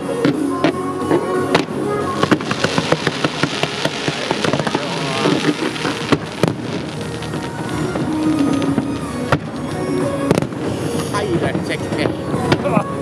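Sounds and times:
fireworks cracking and popping: 0.0 - 13.0
loud firework bang: 1.6 - 9.5.

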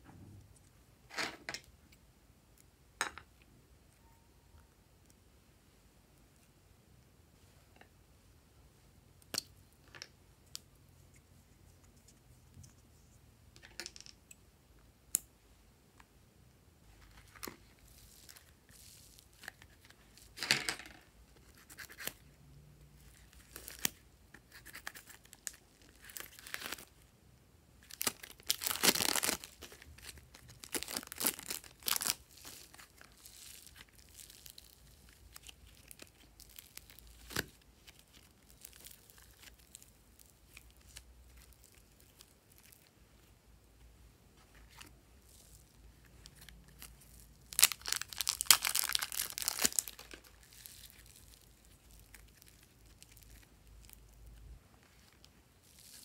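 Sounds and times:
plastic crinkling: 27.8 - 42.9, 44.7 - 54.2, 54.9 - 56.0.

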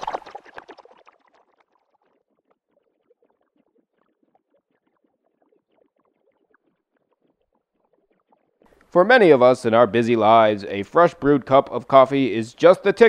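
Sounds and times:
faint rapid crackle of ticks: 0.1 - 9.0.

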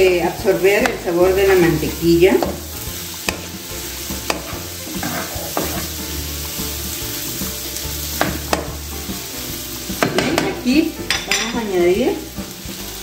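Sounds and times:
food sizzling in frying pan: 0.0 - 13.0
wooden spatula stirring: 0.3 - 10.6
spatula knocking against pan: 3.2 - 3.5, 4.2 - 5.8, 8.2 - 8.8.

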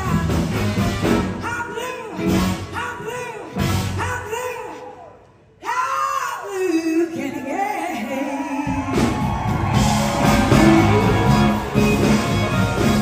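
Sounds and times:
blues rock band playing: 0.0 - 4.1, 8.7 - 13.0
electric guitar: 9.0 - 13.0.

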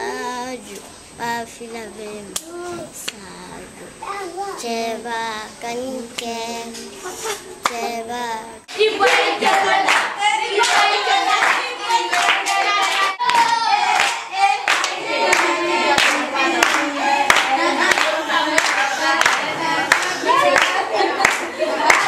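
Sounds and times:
group of voices singing: 4.6 - 22.0
hand-clapping: 9.0 - 22.0.

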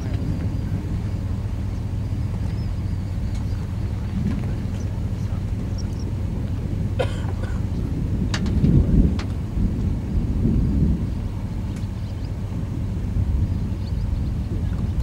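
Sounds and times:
thunderstorm rumbling: 0.0 - 15.0
faint clicks: 2.4 - 6.1, 11.7 - 12.0.

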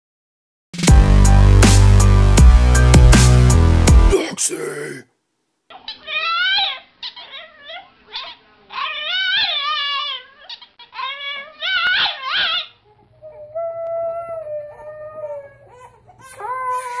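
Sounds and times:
puppy yowling and whining: 5.8 - 17.0.

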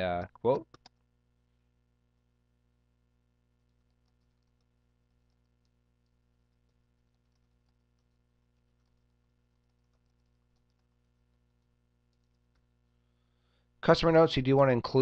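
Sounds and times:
low steady hum: 0.0 - 15.0
typing on computer keyboard: 3.6 - 12.7.

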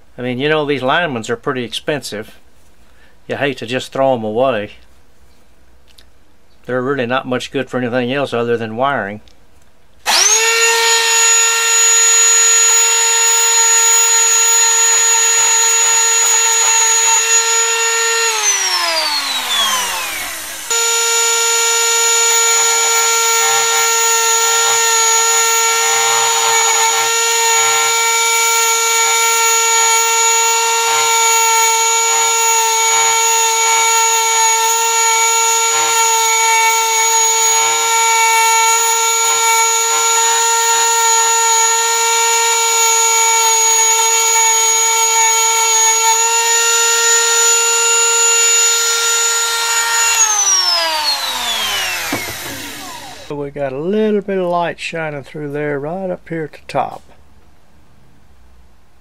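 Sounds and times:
rotary tool grinding metal: 10.1 - 53.3.

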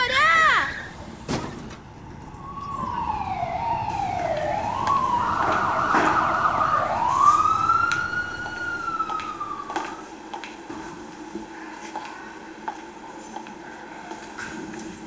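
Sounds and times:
siren wailing: 2.0 - 10.1.

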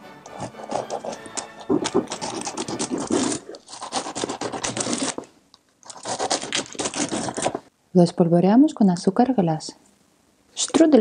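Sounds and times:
knife sawing through crisp pastry: 0.2 - 7.6.

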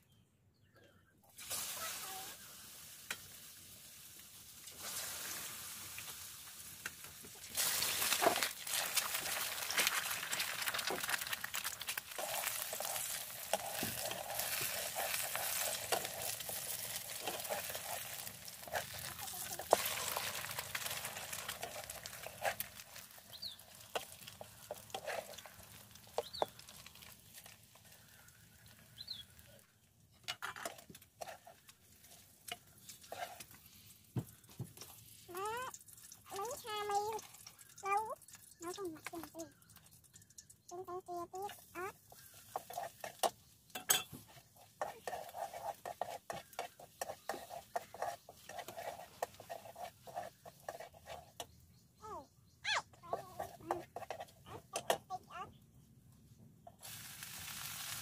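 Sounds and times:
eggs sizzling in hot oil: 1.3 - 51.7, 52.7 - 55.4, 56.6 - 58.0
metal spatula scraping a pan: 7.6 - 26.6, 30.2 - 33.9, 41.5 - 51.5, 53.1 - 55.0.

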